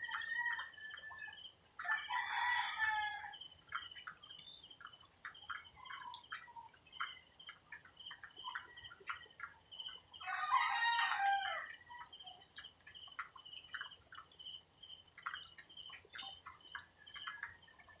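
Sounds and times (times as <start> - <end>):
rooster crowing: 1.8 - 3.4, 10.2 - 11.7.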